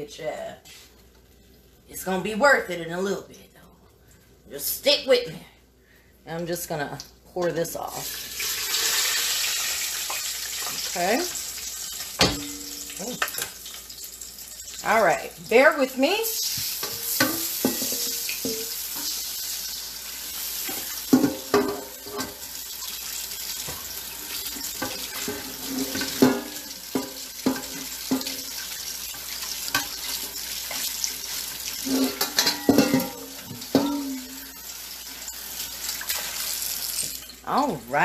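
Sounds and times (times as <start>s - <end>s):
hot oil sizzling in a wok: 8.0s - 14.9s, 16.0s - 37.5s
utensils knocking and scraping pan: 16.4s - 19.2s, 20.6s - 22.4s, 24.6s - 28.4s, 31.8s - 34.6s.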